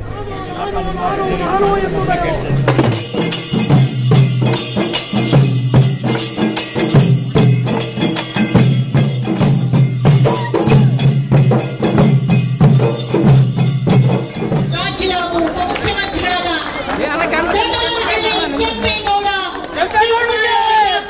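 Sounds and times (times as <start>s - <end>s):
barrel drums beating: 2.6s - 16.3s.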